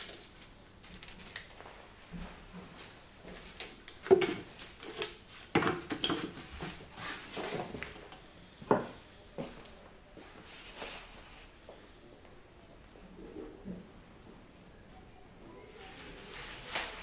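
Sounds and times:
rustling: 0:15.8 - 0:17.0.

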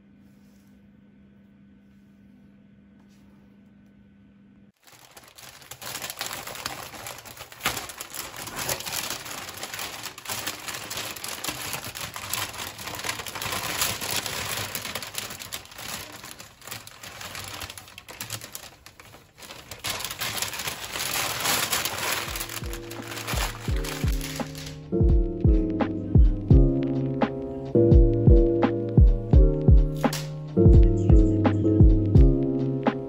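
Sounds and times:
paper wrapping crinkling: 0:04.8 - 0:24.9.

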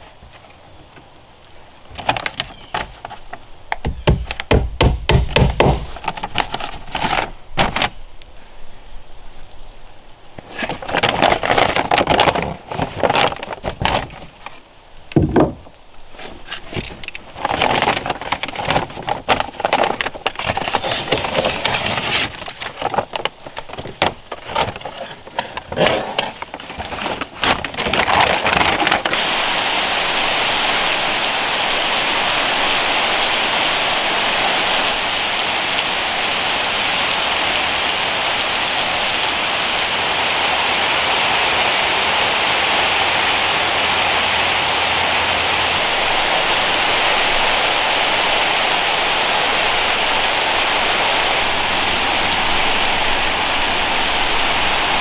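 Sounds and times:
rain falling in forest: 0:00.0 - 0:55.0
paper crinkling and rustling: 0:01.8 - 0:04.5, 0:05.6 - 0:08.0, 0:10.4 - 0:14.6, 0:15.2 - 0:29.4.

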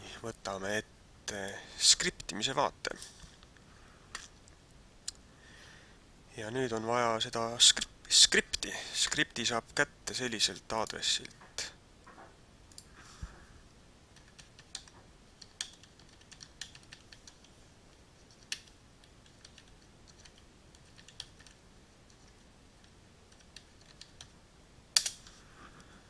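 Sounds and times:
typing on computer keyboard: 0:14.2 - 0:17.5, 0:18.3 - 0:22.3, 0:23.3 - 0:24.3.

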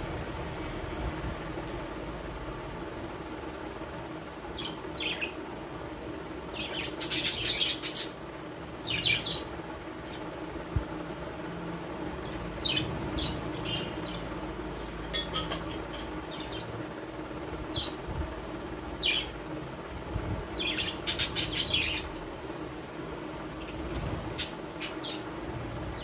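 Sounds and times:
low steady hum: 0:00.0 - 0:26.0
parrots chirping: 0:20.6 - 0:22.1.

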